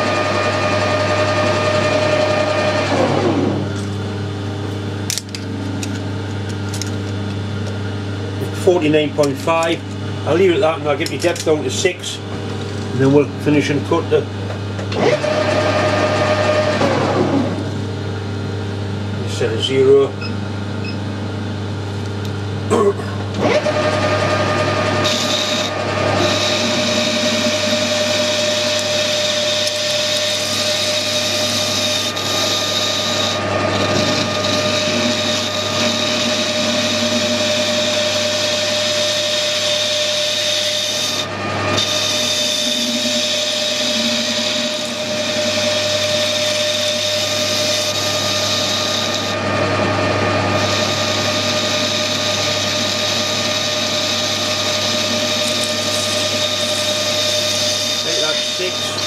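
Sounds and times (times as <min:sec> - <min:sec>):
metal lathe whining: 0:00.0 - 0:03.9, 0:14.7 - 0:17.6, 0:23.3 - 0:59.0.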